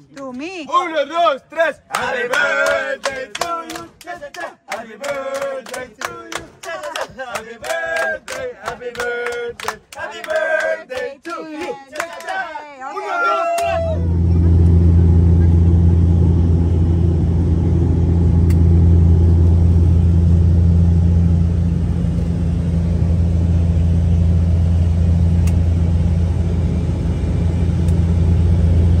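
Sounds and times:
turboprop engine drone in cabin: 0:05.0 - 0:09.8, 0:13.2 - 0:29.0.

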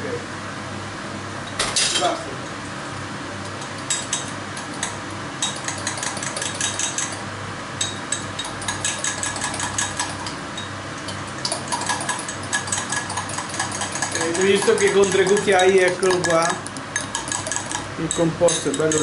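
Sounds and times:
utensil beating mixture in glass: 0:03.7 - 0:07.2, 0:07.8 - 0:10.4, 0:11.4 - 0:19.0.

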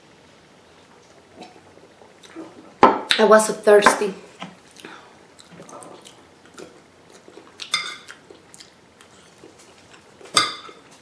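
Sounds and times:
soft chewing: 0:04.4 - 0:11.0.

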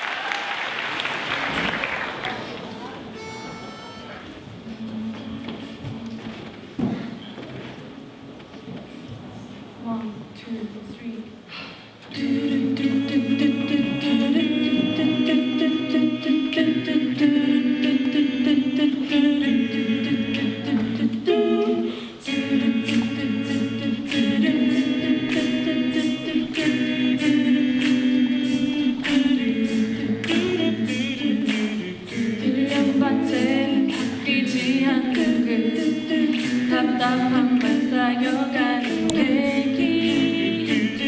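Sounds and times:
mixed choir singing a cappella: 0:03.2 - 0:06.5, 0:12.0 - 0:41.0
steady ticking beat: 0:12.2 - 0:41.0.

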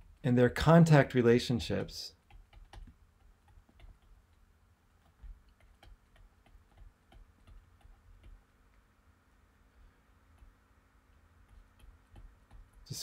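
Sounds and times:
stylus tapping on tablet screen: 0:02.2 - 0:08.9, 0:10.3 - 0:13.0.

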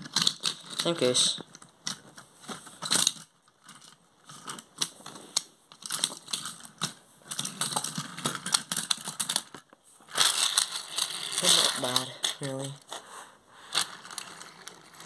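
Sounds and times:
toy train clattering on wooden track: 0:00.0 - 0:04.9, 0:05.7 - 0:12.9, 0:13.7 - 0:15.0.

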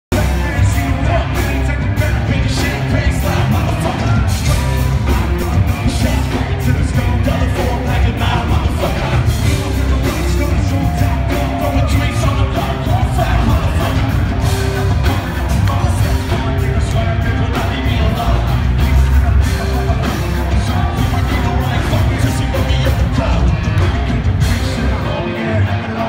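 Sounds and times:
live rock band playing: 0:00.1 - 0:26.0.

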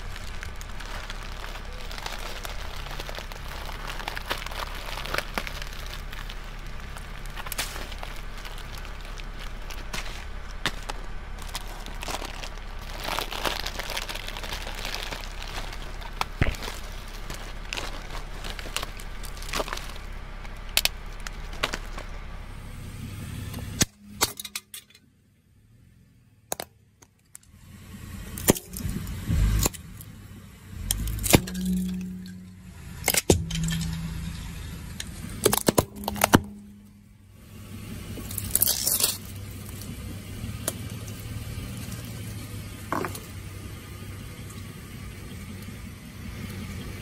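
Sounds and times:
brittle objects cracking and crunching: 0:00.0 - 0:22.2, 0:28.4 - 0:30.1, 0:30.8 - 0:37.1, 0:38.2 - 0:42.2.

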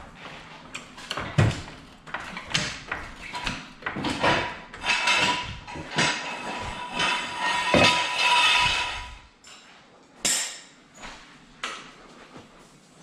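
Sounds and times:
floor jack rattling and scraping: 0:01.0 - 0:09.3.

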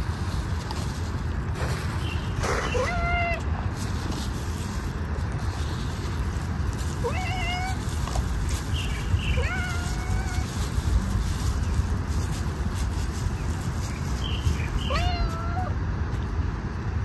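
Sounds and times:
cat meowing: 0:02.7 - 0:03.5, 0:07.0 - 0:08.0, 0:09.2 - 0:10.6, 0:14.7 - 0:15.8.

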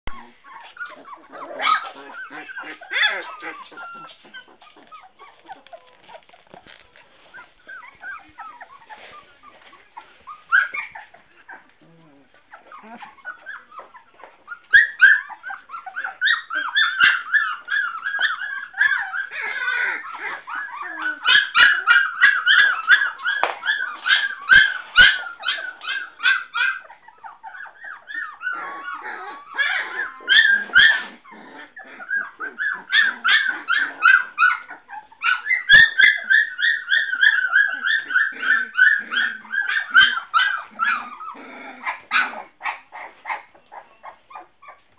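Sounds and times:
puppies whining and yelping: 0:00.1 - 0:44.9.

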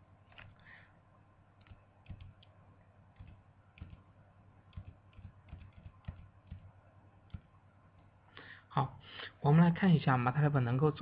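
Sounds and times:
low steady hum: 0:00.0 - 0:11.0
computer keys clicking: 0:01.6 - 0:04.1, 0:04.7 - 0:06.7, 0:07.3 - 0:08.1.

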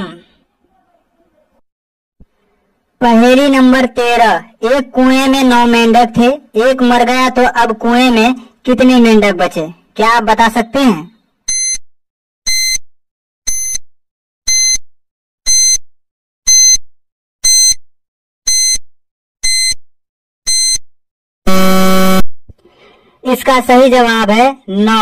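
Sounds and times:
low buzzer: 0:11.5 - 0:11.8, 0:12.5 - 0:12.8, 0:15.5 - 0:15.8, 0:16.5 - 0:16.8, 0:18.5 - 0:18.8, 0:19.4 - 0:19.8, 0:20.5 - 0:20.8, 0:21.5 - 0:22.3.

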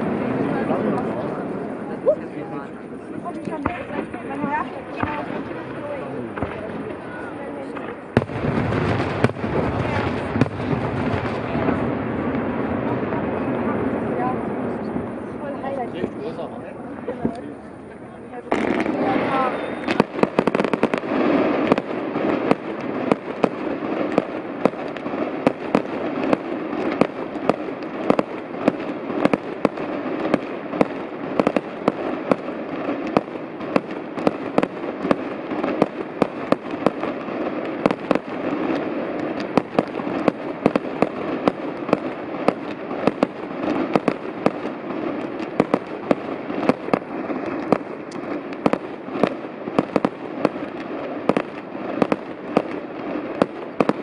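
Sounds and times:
fireworks bangs: 0:00.0 - 0:54.0.

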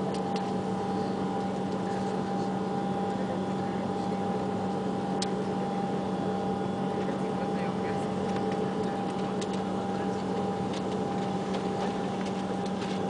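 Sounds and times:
jet engines humming: 0:00.0 - 0:13.0.

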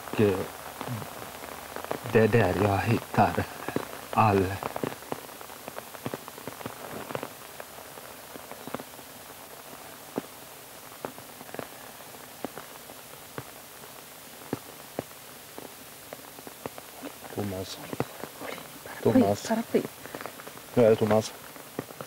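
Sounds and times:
rain dripping on umbrellas: 0:00.0 - 0:22.0
steady hiss: 0:00.0 - 0:22.0.

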